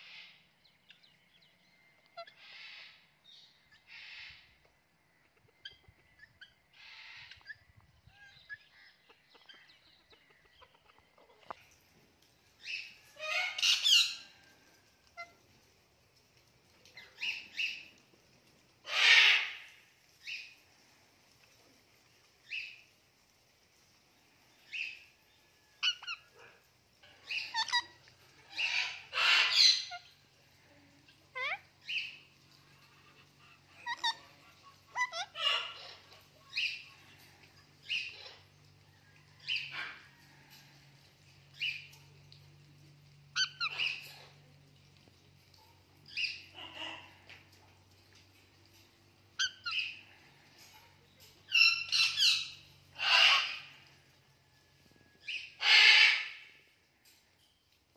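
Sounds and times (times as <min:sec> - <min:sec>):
parakeets chirping and squawking: 0:05.4 - 0:11.6, 0:12.6 - 0:14.3, 0:25.8 - 0:30.3, 0:31.2 - 0:38.5, 0:43.4 - 0:44.3, 0:46.1 - 0:47.5, 0:51.5 - 0:53.8, 0:55.3 - 0:56.4.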